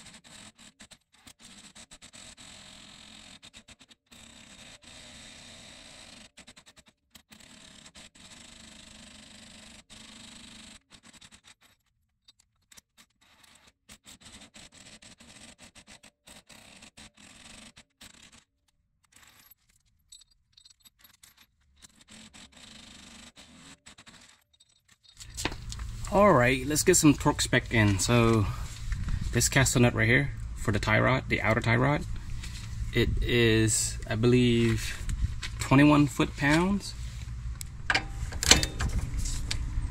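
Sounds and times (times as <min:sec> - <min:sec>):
metal hardware scraping: 0:24.1 - 0:29.9, 0:31.9 - 0:39.9.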